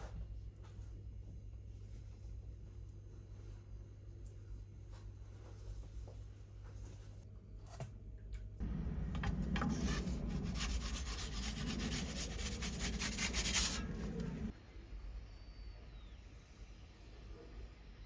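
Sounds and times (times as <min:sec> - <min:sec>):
gas burner flame rushing: 0:08.6 - 0:14.5.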